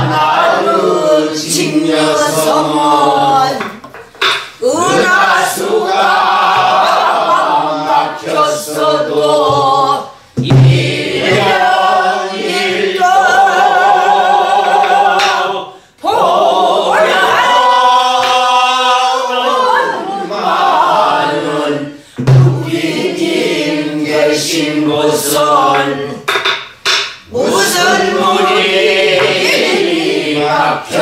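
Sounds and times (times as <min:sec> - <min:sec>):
woman singing with vibrato: 0:04.6 - 0:05.4
barrel drum strokes: 0:22.2 - 0:22.7.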